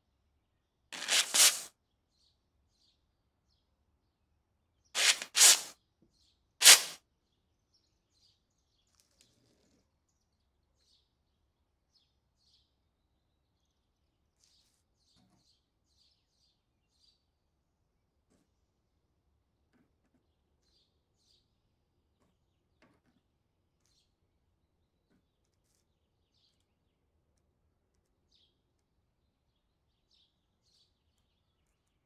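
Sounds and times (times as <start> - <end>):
aerosol spray hissing: 1.0 - 1.7, 5.0 - 5.7, 6.6 - 7.0
small ticks and squeaks: 8.2 - 10.2, 19.7 - 24.3, 25.0 - 32.0.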